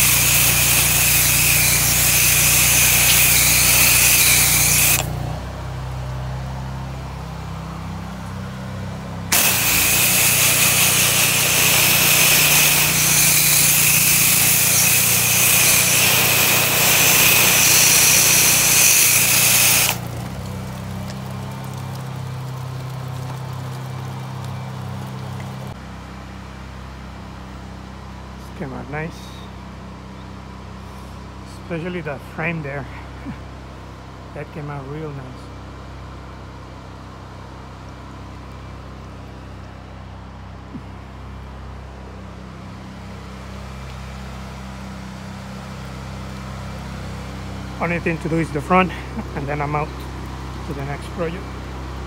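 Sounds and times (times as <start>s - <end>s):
pressure washer spray hissing: 0.0s - 5.2s, 9.3s - 20.2s
pressure washer engine humming: 0.0s - 27.6s, 37.4s - 52.0s.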